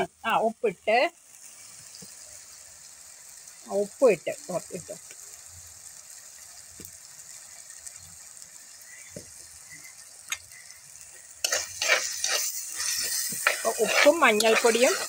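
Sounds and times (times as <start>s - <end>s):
vegetables sizzling in oil: 0.0s - 15.0s
metal spoon scraping pot: 11.4s - 15.0s.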